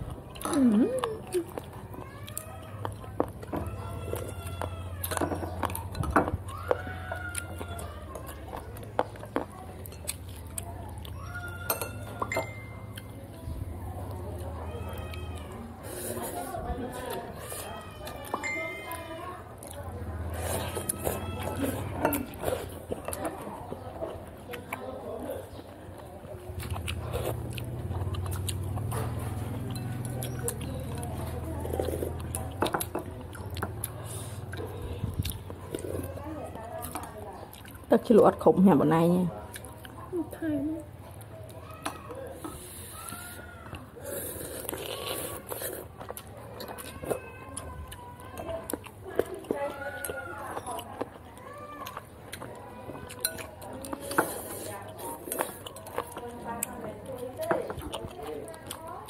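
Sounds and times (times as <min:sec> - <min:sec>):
cutlery clinking against a bowl: 0:08.9 - 0:13.3, 0:20.3 - 0:23.5, 0:28.2 - 0:34.0, 0:53.0 - 0:58.0
sharp clinks: 0:11.7 - 0:13.2.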